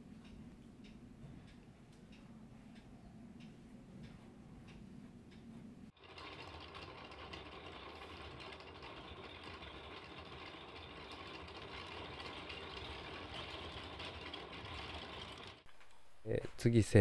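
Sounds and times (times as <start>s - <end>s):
small machine rattling: 5.9s - 16.0s.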